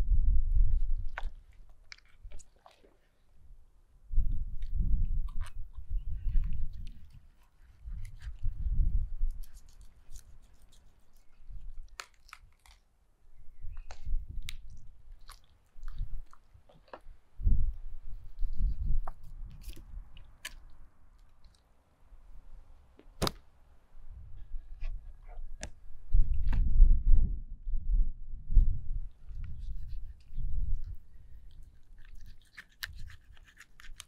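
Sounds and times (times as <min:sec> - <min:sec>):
cartilage clicks and crackles: 0:01.0 - 0:03.0, 0:04.6 - 0:08.6, 0:09.2 - 0:12.9, 0:13.8 - 0:17.0, 0:19.0 - 0:21.7, 0:29.4 - 0:34.0
knife cutting fish flesh: 0:32.1 - 0:34.0.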